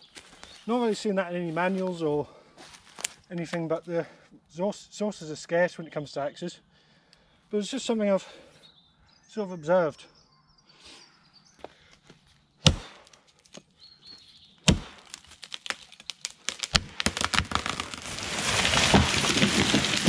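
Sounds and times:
axe striking tree trunk: 12.6s - 13.6s, 14.6s - 20.0s
wood cracking and splintering: 14.6s - 20.0s
tree crashing through branches: 14.7s - 20.0s.

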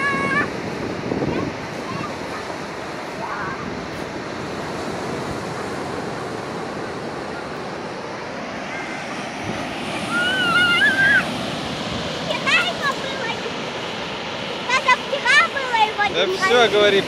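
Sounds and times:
surf washing up beach: 0.0s - 17.0s
high-pitched wavering cry: 10.1s - 11.4s.

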